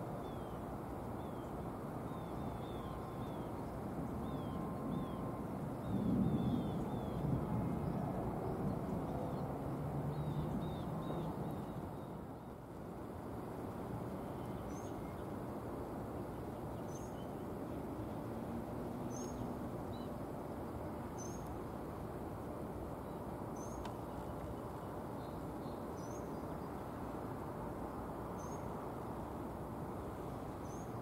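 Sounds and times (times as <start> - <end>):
small birds chirping: 13.8 - 18.3, 18.9 - 20.2, 23.0 - 27.0.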